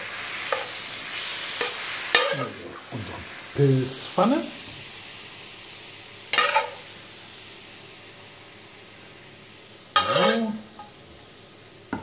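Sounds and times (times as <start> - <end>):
mushrooms sizzling in a pan: 0.0 - 12.0
spatula scraping a pan: 0.4 - 2.6, 6.3 - 6.8, 10.0 - 10.5.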